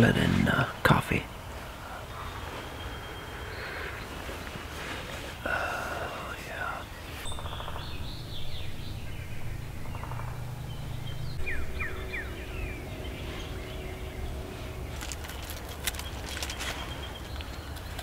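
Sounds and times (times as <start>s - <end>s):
songbirds chirping: 0.0s - 18.0s
steady low rumble: 5.4s - 18.0s
downward-slurred bird whistles: 7.1s - 14.5s.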